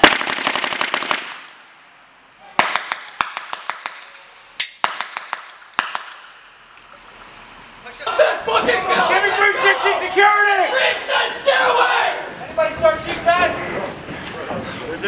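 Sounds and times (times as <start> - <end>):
airsoft gun full-auto burst: 0.0 - 1.5
airsoft gun single shots: 4.6 - 6.4.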